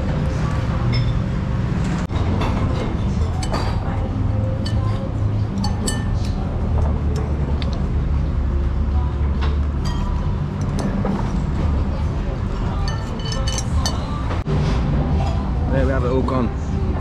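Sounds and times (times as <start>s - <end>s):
metal spoon scraping ceramic bowl: 12.6s - 14.1s.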